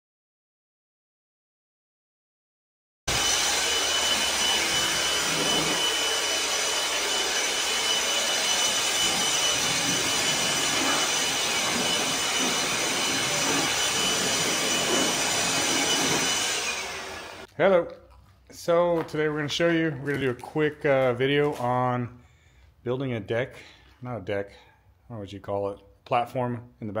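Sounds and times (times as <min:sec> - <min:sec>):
leaf blower running: 0:03.1 - 0:17.5.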